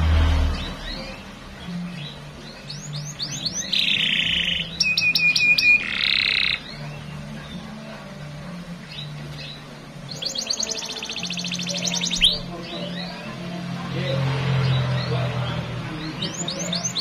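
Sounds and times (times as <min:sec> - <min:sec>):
canary singing: 0:00.0 - 0:17.0.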